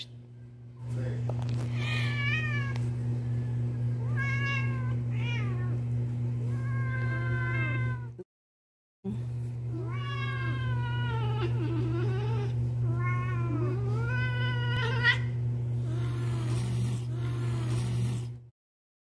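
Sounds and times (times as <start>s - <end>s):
steady low hum: 0.0s - 8.2s, 9.1s - 18.5s
cat growl-yowling: 4.0s - 5.8s, 6.5s - 8.2s, 9.7s - 18.3s.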